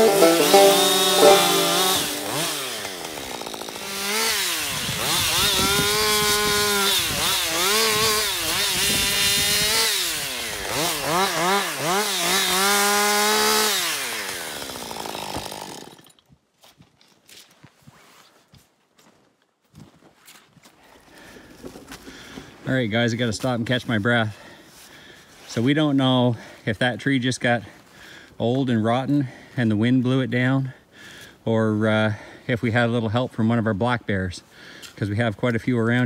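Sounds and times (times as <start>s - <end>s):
chainsaw cutting wood: 0.0s - 16.4s.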